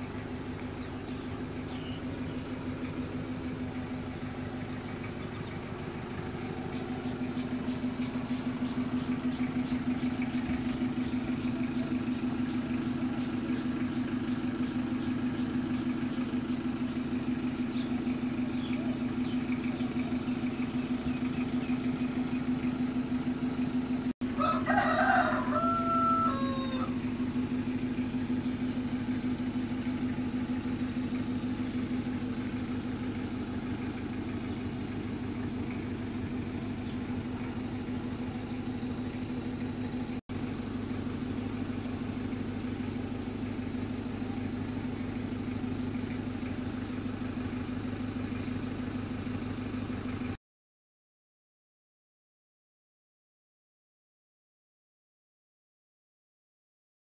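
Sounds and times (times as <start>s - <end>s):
engine idling: 0.0s - 50.4s
rooster crowing: 24.4s - 27.0s.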